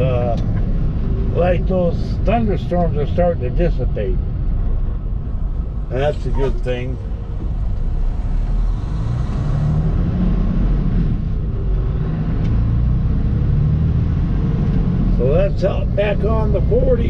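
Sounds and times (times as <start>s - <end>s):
road noise: 0.0s - 17.0s
truck engine accelerating: 0.0s - 17.0s.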